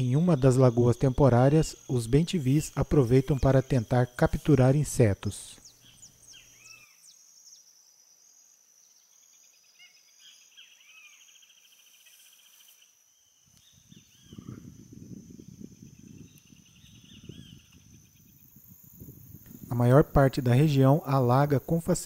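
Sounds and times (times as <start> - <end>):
insect drone: 0.0 - 22.0
bird calls: 4.9 - 7.7, 9.0 - 14.8, 16.0 - 18.4.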